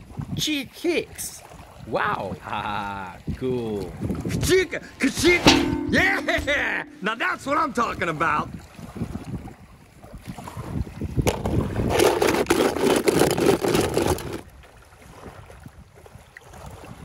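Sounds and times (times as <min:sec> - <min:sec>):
water splashing and sloshing: 0:01.3 - 0:02.4, 0:08.0 - 0:17.0
short knocks: 0:04.4 - 0:07.1.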